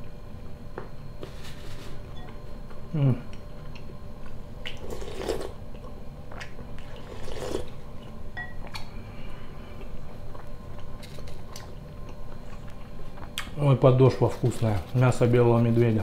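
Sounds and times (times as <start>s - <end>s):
slurping off a spoon: 7.0s - 7.7s
chewing: 9.7s - 13.5s.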